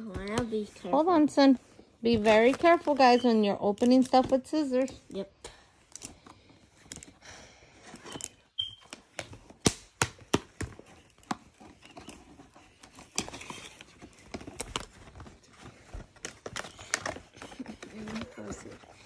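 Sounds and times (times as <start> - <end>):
packaging crinkling and rustling: 8.0 - 19.0.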